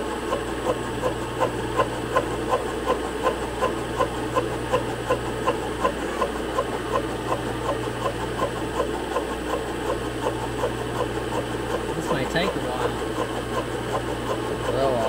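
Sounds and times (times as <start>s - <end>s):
boring bar cutting steel: 0.0s - 15.0s
cutter ticking: 0.0s - 15.0s
milling machine motor hum: 0.0s - 15.0s.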